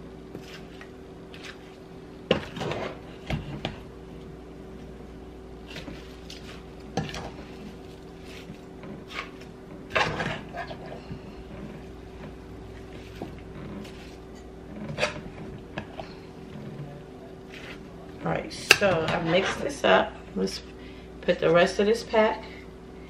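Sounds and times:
food being stirred: 5.6 - 18.1.

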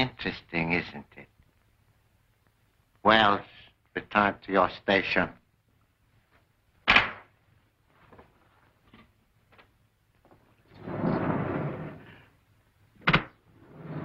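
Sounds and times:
sliding wall panel rumbling: 10.7 - 12.2, 13.0 - 14.0.

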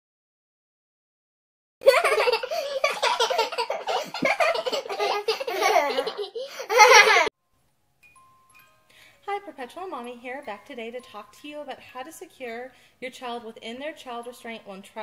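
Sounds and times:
baby laughing: 1.8 - 7.3.

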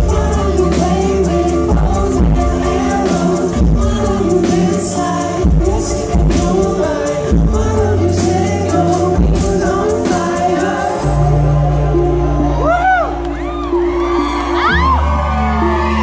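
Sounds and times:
male lead vocal: 0.0 - 12.8
rock band playing: 0.0 - 16.0.

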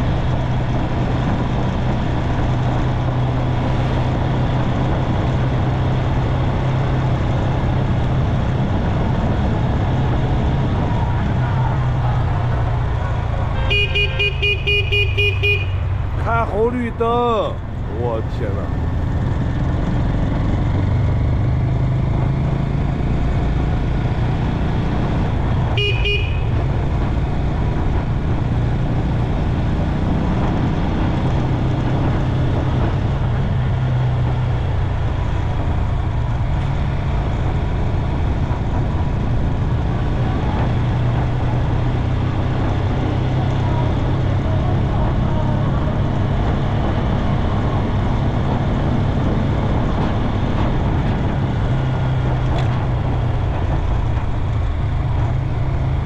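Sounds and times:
road and wind noise: 0.0 - 56.0
horn beep: 13.6 - 15.9, 25.8 - 26.6.

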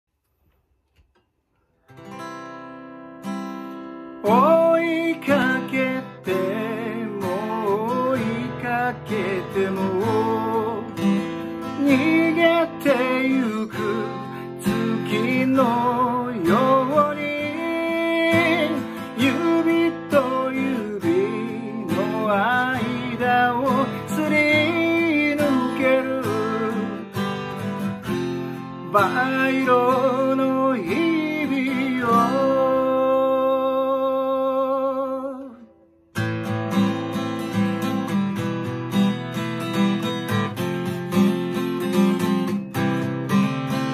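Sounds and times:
acoustic guitar strumming: 1.1 - 43.9
man singing: 4.2 - 27.4, 28.6 - 35.8.

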